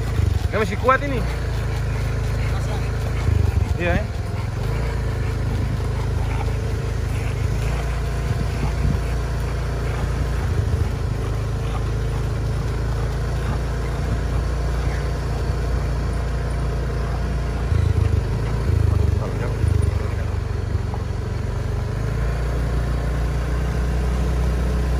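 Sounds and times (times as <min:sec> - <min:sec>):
wind buffeting microphone: 0:03.2 - 0:11.8.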